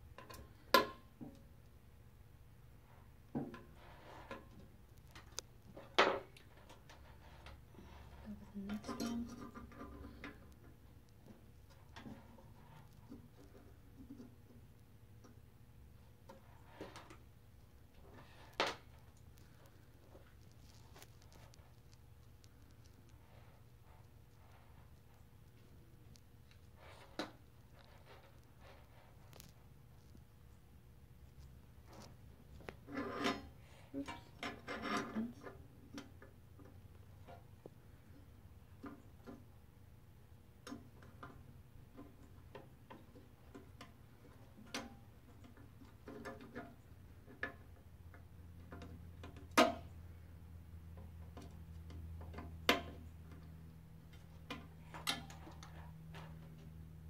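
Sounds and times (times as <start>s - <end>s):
low steady hum: 0.0s - 57.0s
rustling of cables: 2.7s - 39.8s.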